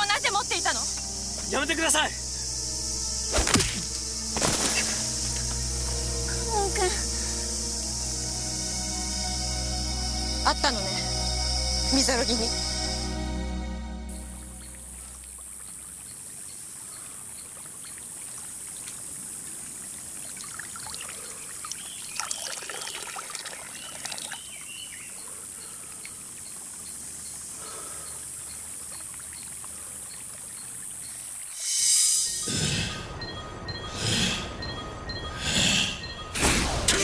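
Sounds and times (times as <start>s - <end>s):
water splashing on face: 3.3s - 5.4s
stream trickling over stones: 14.1s - 31.6s.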